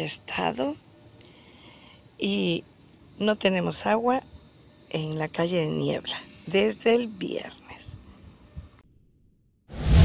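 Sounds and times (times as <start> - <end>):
faint background noise: 0.0 - 8.8
whoosh sound effect: 9.7 - 10.0.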